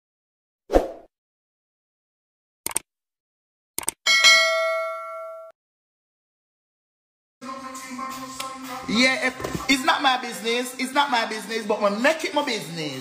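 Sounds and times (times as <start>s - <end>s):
short clicks: 2.6s - 2.9s, 3.8s - 4.0s
bell ding: 4.1s - 5.6s.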